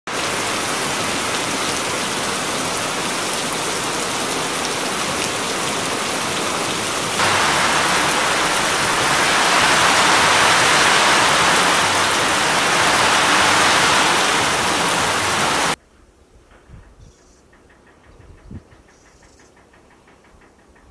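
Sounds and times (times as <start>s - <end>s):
rain falling on ground: 0.1s - 15.8s
runoff streaming into water jar: 7.2s - 15.8s.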